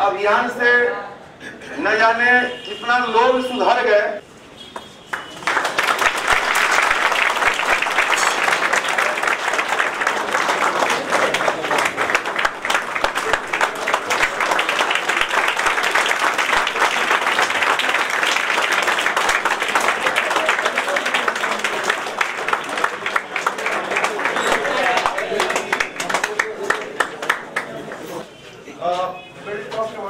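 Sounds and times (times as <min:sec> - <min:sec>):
crowd applauding: 0:04.8 - 0:28.2.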